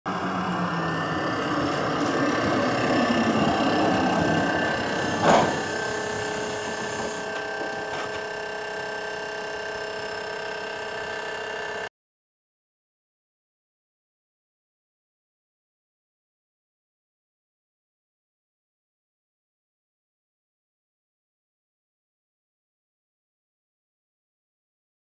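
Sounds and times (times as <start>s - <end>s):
tram running with motor whine: 0.1s - 11.9s.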